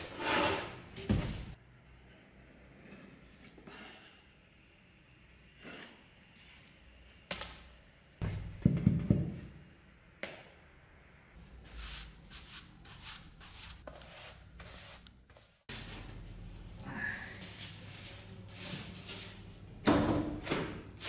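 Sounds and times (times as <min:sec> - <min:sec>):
brush swishing over wood: 0:11.5 - 0:16.0.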